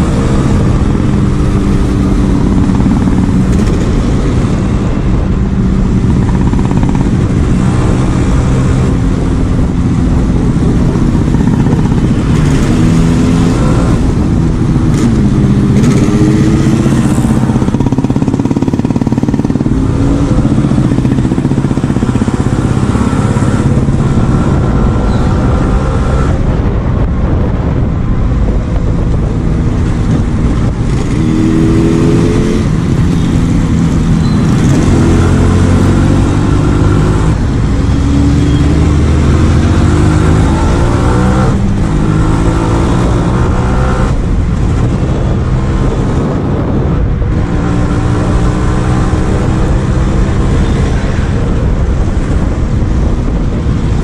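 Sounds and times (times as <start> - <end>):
motorcycle engine revving: 0.0 - 54.0.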